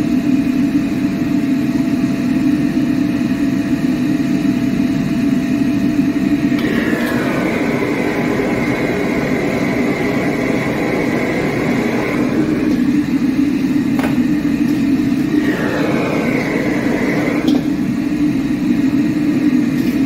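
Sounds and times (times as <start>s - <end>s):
gas burner roaring: 0.0s - 20.0s.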